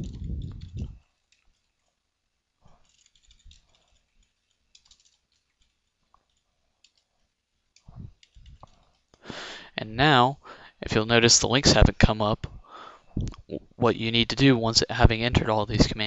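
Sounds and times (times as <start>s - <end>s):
computer keyboard typing: 0.0s - 2.0s, 2.7s - 9.1s.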